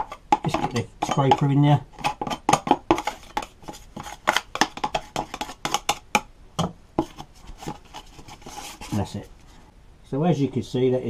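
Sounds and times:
scraper scraping plastic cover: 0:02.0 - 0:05.9, 0:07.0 - 0:09.2.

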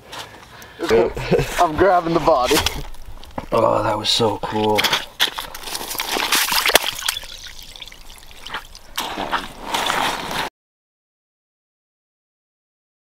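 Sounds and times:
water splashing and sloshing: 0:02.2 - 0:10.5.

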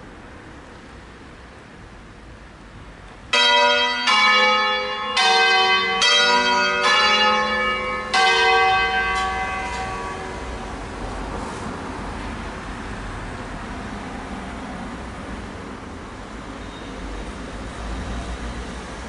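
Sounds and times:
church bells ringing: 0:03.3 - 0:10.9.

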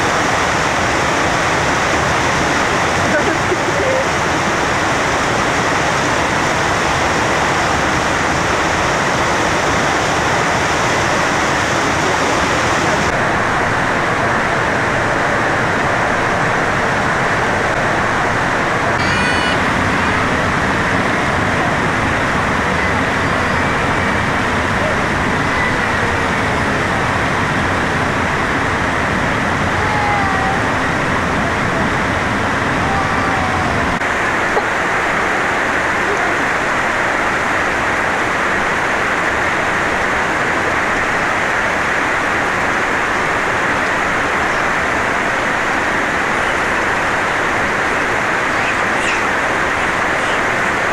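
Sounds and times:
rushing water: 0:00.0 - 0:50.9.

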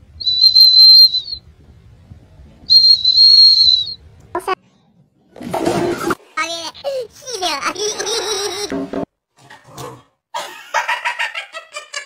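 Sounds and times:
shrill plastic whistle blasts: 0:00.2 - 0:01.4, 0:02.7 - 0:04.0.

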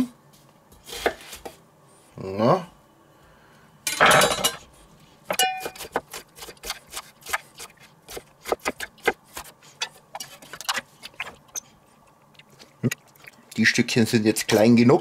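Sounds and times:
knife chopping on wooden board: 0:05.5 - 0:09.5.

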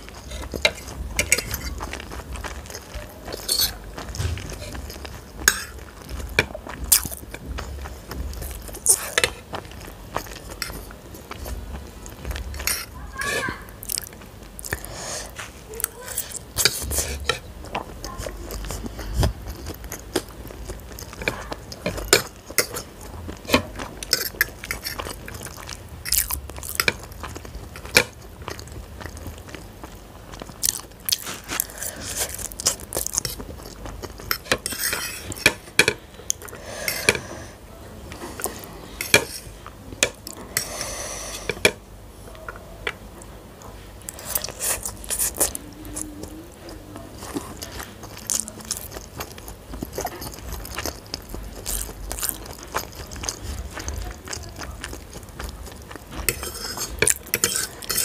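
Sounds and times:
chewing noodles: 0:00.0 - 0:37.3, 0:44.0 - 0:58.0
fork scraping ceramic plate: 0:03.3 - 0:05.8, 0:12.6 - 0:13.5, 0:34.2 - 0:35.9, 0:36.8 - 0:37.4, 0:56.2 - 0:58.0.

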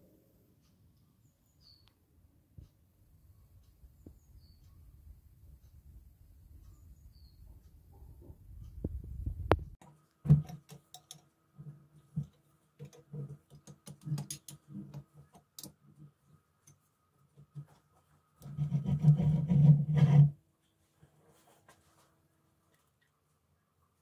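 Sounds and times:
metal clicks and knocks: 0:09.8 - 0:16.8
metal grating: 0:18.4 - 0:20.4.

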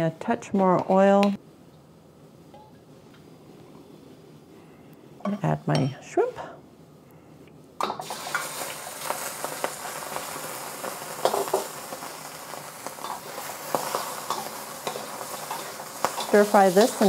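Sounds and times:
shrimp sizzling in hot oil: 0:07.9 - 0:17.0
metal spatula scraping wok: 0:13.0 - 0:17.0.

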